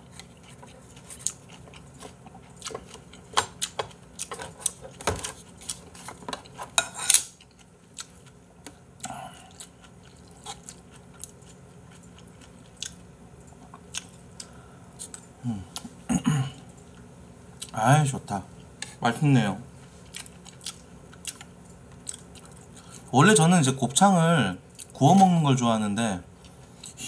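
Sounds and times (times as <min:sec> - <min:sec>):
chewing: 0:00.0 - 0:06.7, 0:07.4 - 0:15.9, 0:20.0 - 0:23.1.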